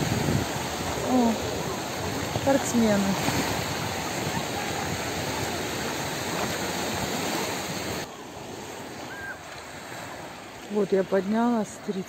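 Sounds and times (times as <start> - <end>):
surf washing on rocks: 0.0 - 12.0.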